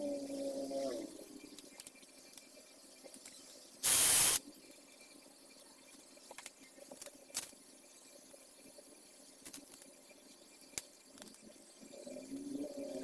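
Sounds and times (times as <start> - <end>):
short burst of hissing air: 3.8 - 4.4.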